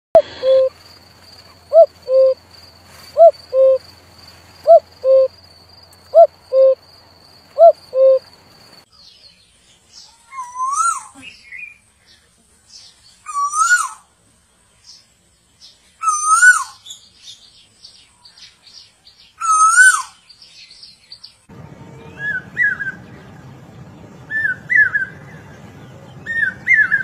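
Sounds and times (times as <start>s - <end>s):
cuckoo calling: 0.2s - 8.8s, 21.5s - 23.6s, 24.2s - 27.0s
koel rising and falling calls: 1.7s - 2.4s.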